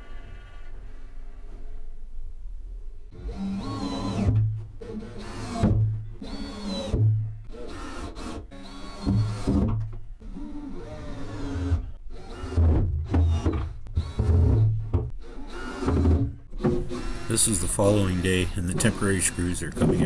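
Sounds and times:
cordless drill driving screws: 3.2 - 9.6, 10.2 - 20.0.

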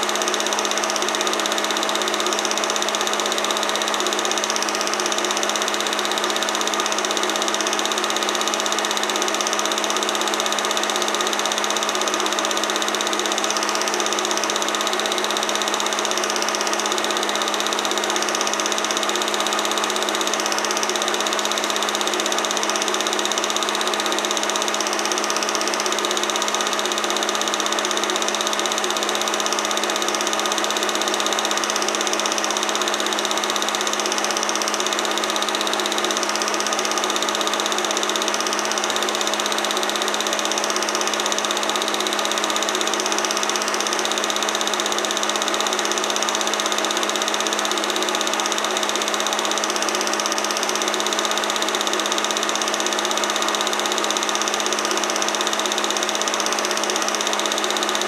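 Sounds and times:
film projector humming and whirring: 0.0 - 58.0.

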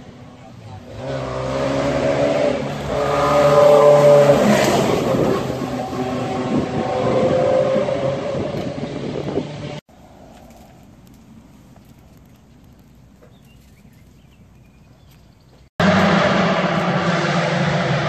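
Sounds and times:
race car engine passing: 0.7 - 9.8, 15.8 - 18.0.

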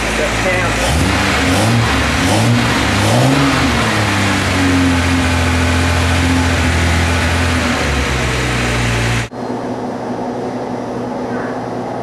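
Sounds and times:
car engine idling: 0.0 - 9.3.

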